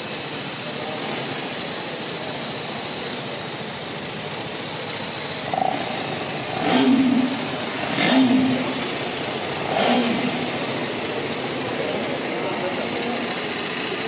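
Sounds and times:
motorcycle engine idling and revving: 0:00.0 - 0:14.0.

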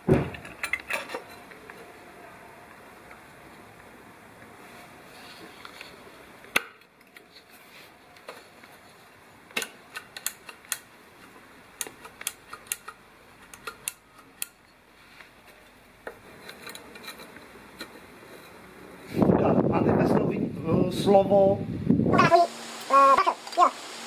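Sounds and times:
metal-on-metal clicks and taps: 0:09.5 - 0:10.9, 0:11.8 - 0:14.8.

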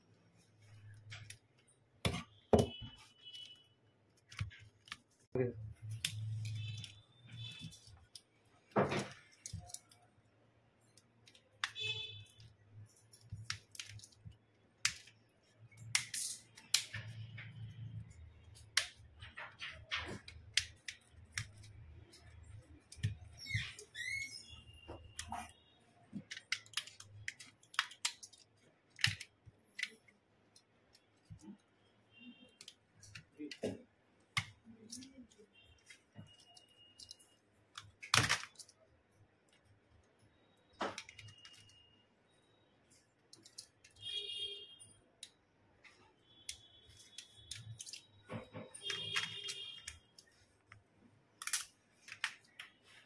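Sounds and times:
smartphone parts clicking and snapping: 0:05.9 - 0:25.5, 0:26.1 - 0:31.7, 0:32.4 - 0:38.9, 0:40.7 - 0:41.8, 0:43.1 - 0:44.2, 0:46.4 - 0:52.8.

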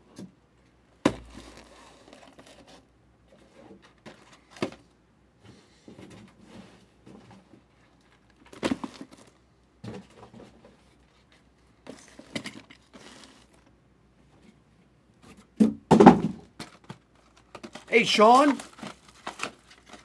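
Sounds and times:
foil wrappers rustling and crinkling: 0:16.6 - 0:20.0.

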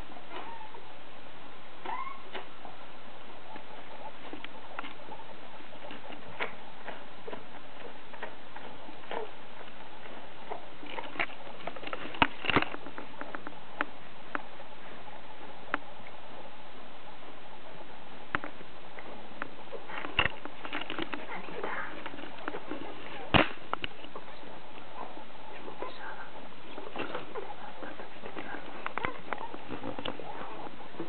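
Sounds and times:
puppies eating with small clicks: 0:03.5 - 0:14.5, 0:18.3 - 0:31.0.

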